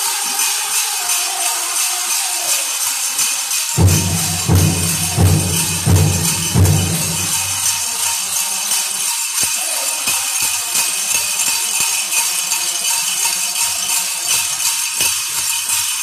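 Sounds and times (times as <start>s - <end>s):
bells jingling: 0.0s - 16.0s
large drum beating slowly: 3.8s - 7.8s.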